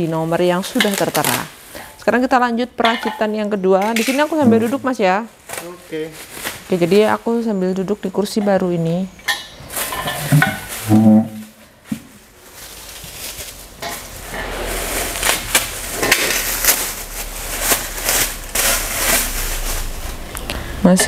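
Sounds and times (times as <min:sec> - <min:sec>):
plastic wrap crinkling: 0:00.0 - 0:02.6, 0:03.3 - 0:20.6.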